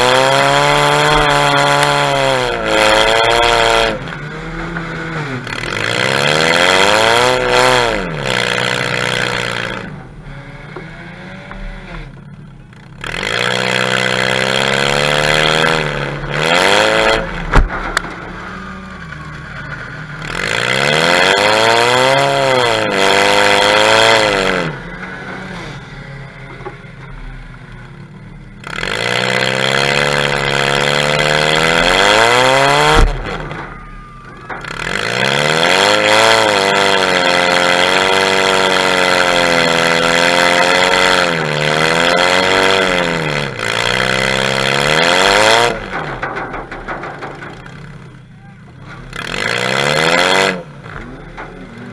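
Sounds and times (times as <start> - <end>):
car engine revving hard: 0.0 - 12.1, 13.0 - 26.6, 28.6 - 33.8, 34.6 - 46.1, 49.0 - 51.9
sharp bang: 16.1 - 20.2, 31.8 - 35.1.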